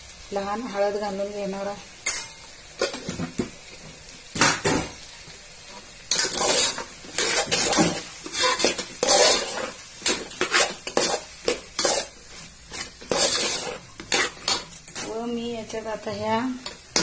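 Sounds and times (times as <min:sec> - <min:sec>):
food sizzling in oil: 0:00.0 - 0:17.0
metal spoon scraping metal pot: 0:06.1 - 0:12.1, 0:12.7 - 0:15.1.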